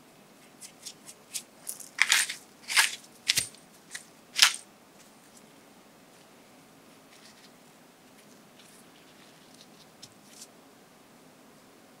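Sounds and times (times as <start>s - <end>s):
pepper mill grinding: 0.6s - 4.6s.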